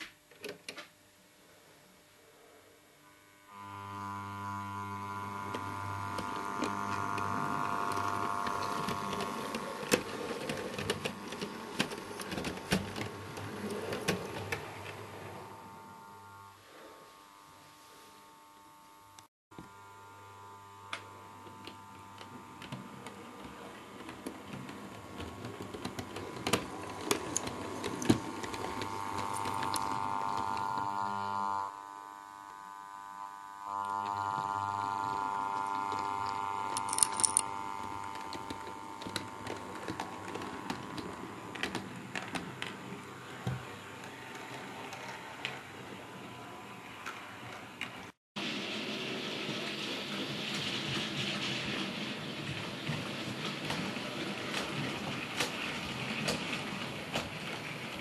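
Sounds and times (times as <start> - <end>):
electric motor whine: 3.0 - 48.2.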